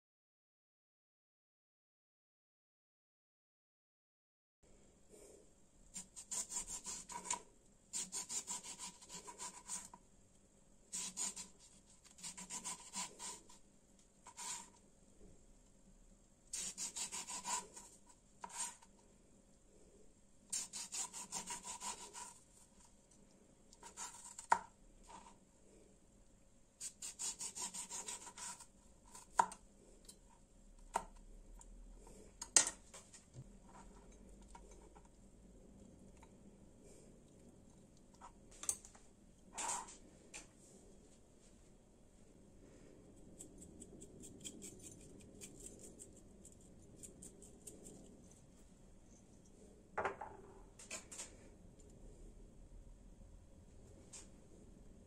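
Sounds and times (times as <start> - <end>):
knife sawing through lemon: 6.0 - 9.9, 10.9 - 13.6, 16.5 - 18.8, 20.5 - 22.4, 26.8 - 28.6.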